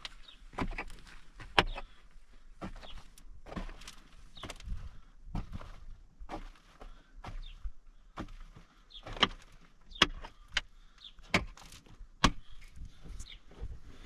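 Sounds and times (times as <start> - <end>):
pickaxe striking earth and rock: 0.5 - 1.8, 9.0 - 12.6.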